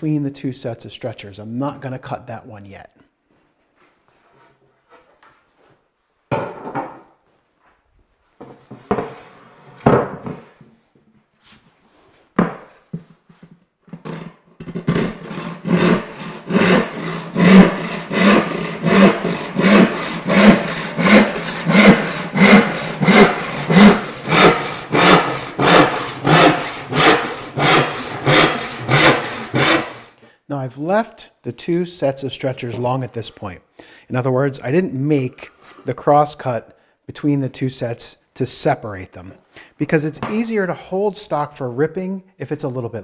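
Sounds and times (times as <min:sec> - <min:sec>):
hand saw cutting wood: 0:14.0 - 0:30.2.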